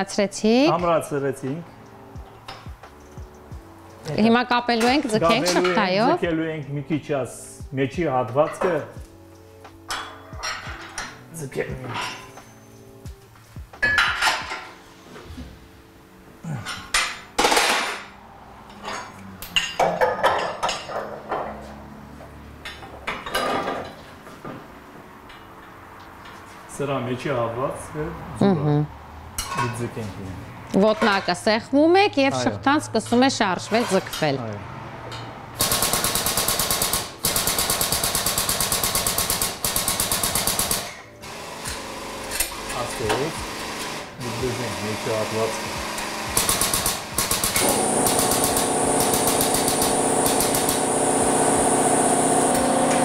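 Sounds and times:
hydraulic pump chattering: 0:45.9 - 0:53.0.

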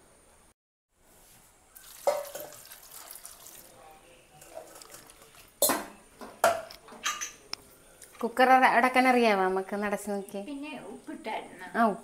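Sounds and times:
pouring hiss: 0:01.7 - 0:05.8
steel kitchenware clinking: 0:01.8 - 0:03.6, 0:04.4 - 0:07.5.

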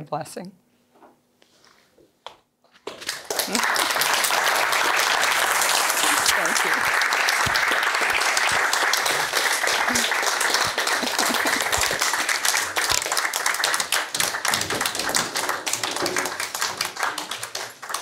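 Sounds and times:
audience applauding: 0:02.9 - 0:18.0.

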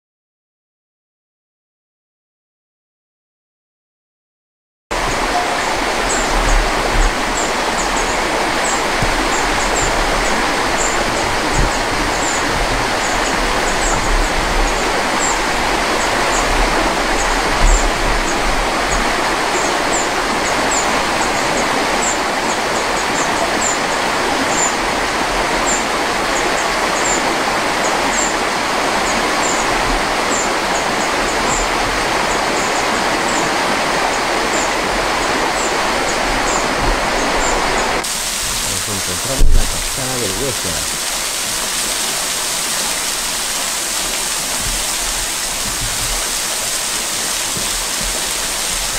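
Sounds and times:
river water rushing over rocks: 0:04.9 - 0:48.9.

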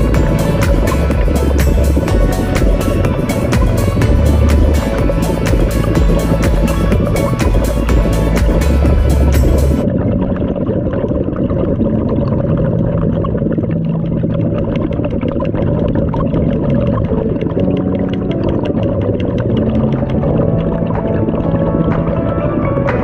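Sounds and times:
muffled underwater boat engine drone: 0:00.0 - 0:23.0.

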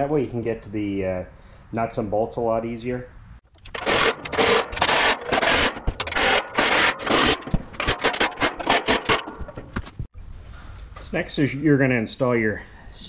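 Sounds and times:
impact driver rattling bursts: 0:03.6 - 0:09.6.

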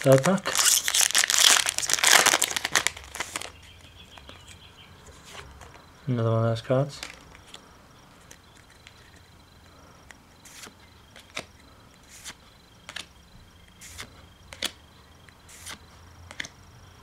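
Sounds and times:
cards being flipped: 0:00.0 - 0:05.8, 0:07.0 - 0:07.6, 0:08.2 - 0:09.3, 0:10.0 - 0:16.6.

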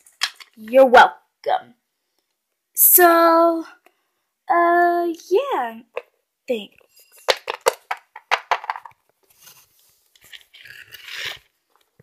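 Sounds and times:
toy figurine clicking on wooden floor: 0:07.2 - 0:09.0
rough rubbing sound: 0:09.3 - 0:11.5.

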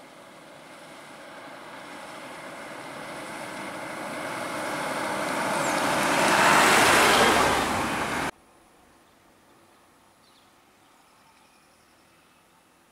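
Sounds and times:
rushing road vehicle: 0:00.0 - 0:08.4.

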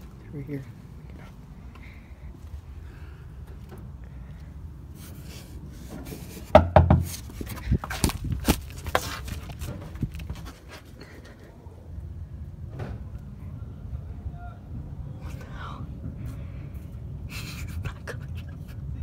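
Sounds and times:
knocks and scrapes: 0:05.0 - 0:11.0.

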